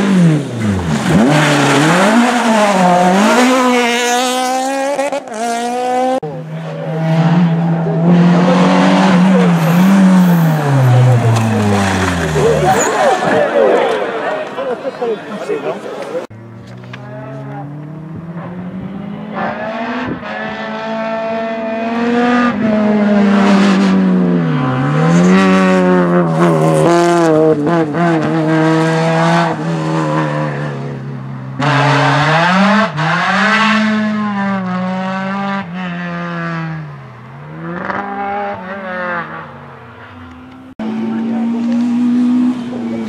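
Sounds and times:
rally car engine revving: 0.0s - 43.0s.

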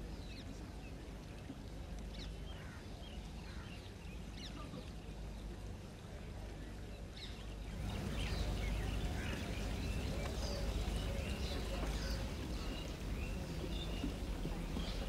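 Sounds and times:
birds chirping: 7.2s - 15.0s.

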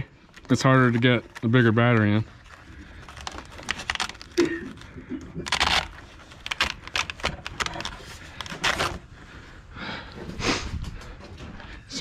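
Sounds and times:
plastic scrapes and clicks: 0.3s - 9.0s.

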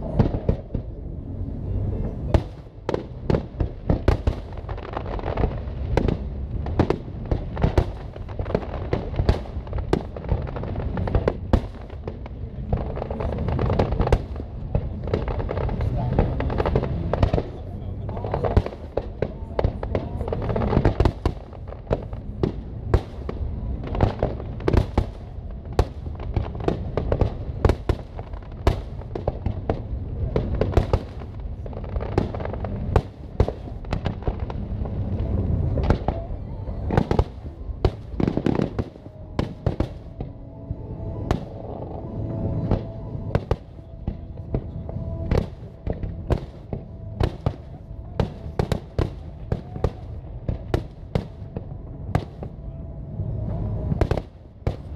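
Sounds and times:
low rumble: 0.0s - 54.9s
music playing: 34.1s - 54.9s.

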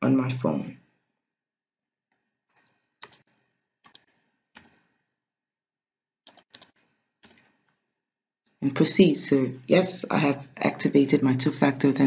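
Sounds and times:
computer keyboard keystrokes: 3.0s - 4.8s, 6.3s - 7.4s.

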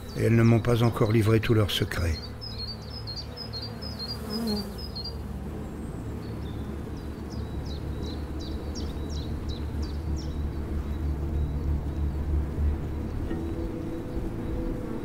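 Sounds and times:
bird chirping: 0.0s - 15.0s
low outdoor rumble: 5.1s - 15.0s.

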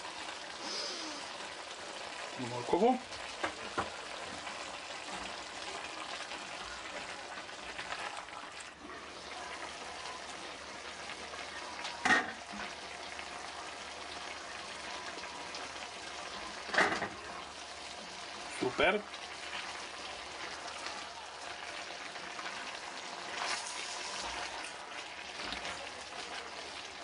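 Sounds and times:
chicken and vegetables sizzling: 0.0s - 27.0s.

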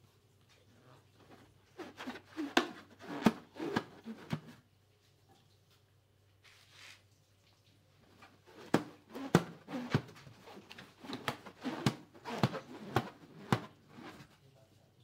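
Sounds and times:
rubbery balloon squeaks: 1.3s - 4.6s, 8.2s - 14.3s
sharp knocks on balloon: 8.5s - 14.2s.

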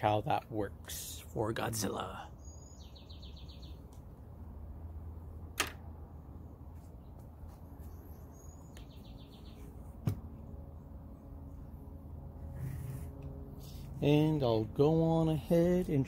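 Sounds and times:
low steady hum: 0.0s - 16.0s
bird trill: 2.4s - 3.8s, 7.9s - 9.7s.

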